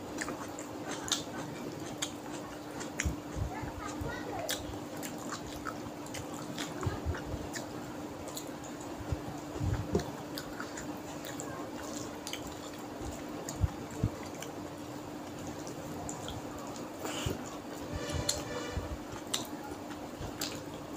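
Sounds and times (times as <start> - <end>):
steady low hum: 0.0 - 20.9
chewing and wet mouth clicks: 0.1 - 17.6, 19.1 - 20.9.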